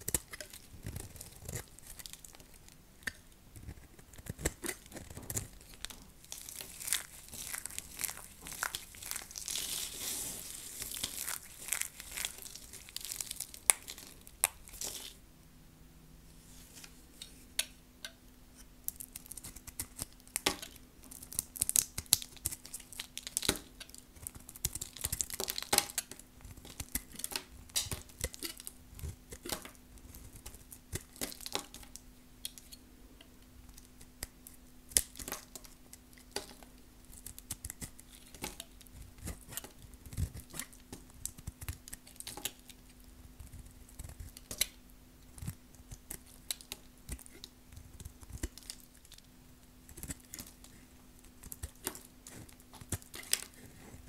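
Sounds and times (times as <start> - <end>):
knife crunching through hard soap: 3.0 - 15.2, 51.3 - 53.8.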